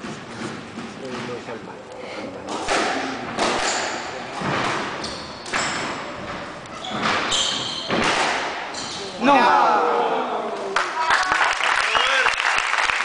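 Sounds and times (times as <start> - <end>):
squash ball hit by rackets: 2.5 - 5.9, 6.9 - 8.7
sneakers squeaking on wooden floor: 3.6 - 9.2.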